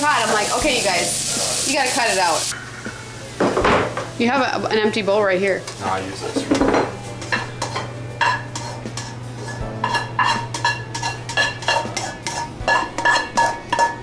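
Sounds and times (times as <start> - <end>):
skillet and bowl clinking: 5.6 - 14.0.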